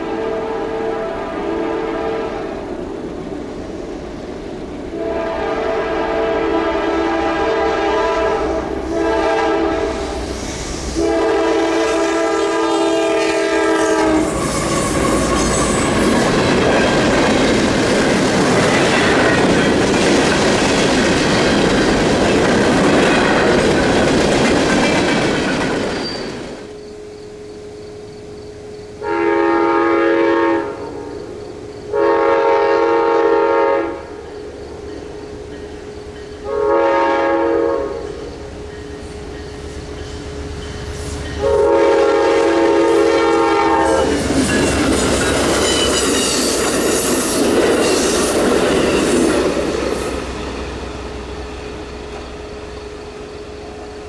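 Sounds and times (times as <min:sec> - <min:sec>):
locomotive horn blasts: 0:00.0 - 0:02.6, 0:04.9 - 0:10.2, 0:11.0 - 0:16.0, 0:29.0 - 0:30.9, 0:31.9 - 0:34.2, 0:36.4 - 0:38.1, 0:41.4 - 0:44.2
train rushing past: 0:00.0 - 0:54.0
wheels clattering on rails: 0:14.2 - 0:26.8, 0:38.0 - 0:42.2, 0:44.0 - 0:52.4.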